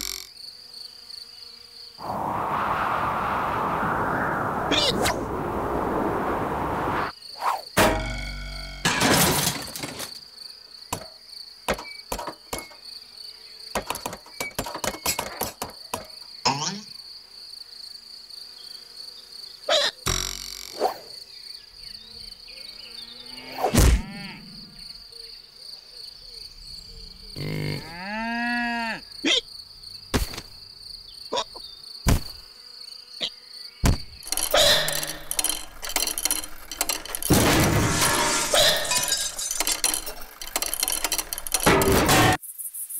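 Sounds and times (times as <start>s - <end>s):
high insect buzz: 0.0s - 8.9s, 9.6s - 41.6s, 42.3s - 42.9s
cow mooing: 23.2s - 24.8s, 27.4s - 29.1s
rustling clatter: 34.2s - 42.4s.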